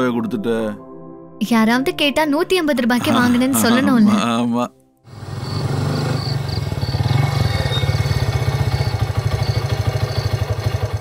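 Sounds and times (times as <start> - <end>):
motorcycle engine running: 5.1 - 11.0.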